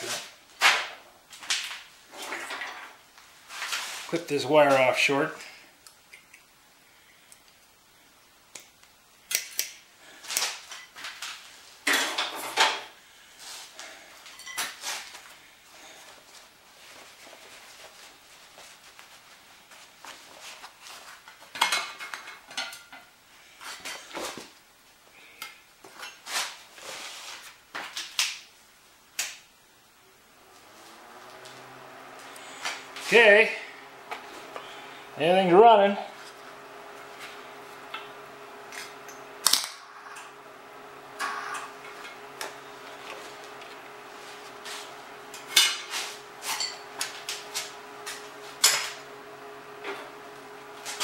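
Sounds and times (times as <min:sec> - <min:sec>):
metal tools clinking on steel: 0:14.3 - 0:14.8, 0:46.5 - 0:47.0.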